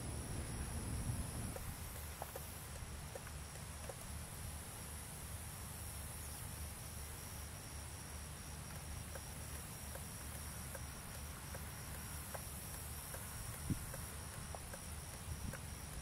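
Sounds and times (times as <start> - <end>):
faint ticks: 1.5 - 4.2, 8.5 - 16.0.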